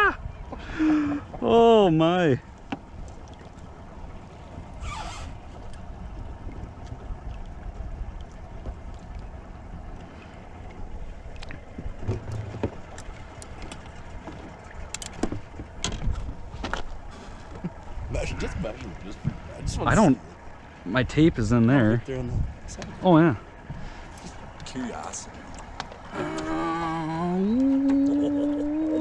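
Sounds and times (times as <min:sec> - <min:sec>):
wind and water rumble: 0:00.0 - 0:29.0
clicks and knocks handling fish: 0:10.7 - 0:17.9, 0:23.6 - 0:26.5.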